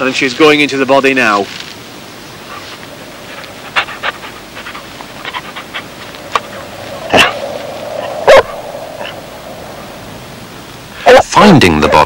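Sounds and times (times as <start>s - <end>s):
dog panting and snuffling: 2.5s - 6.5s.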